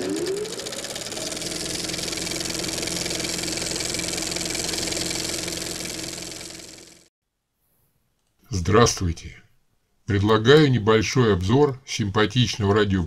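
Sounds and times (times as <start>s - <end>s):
film projector whirring: 0.0s - 7.1s.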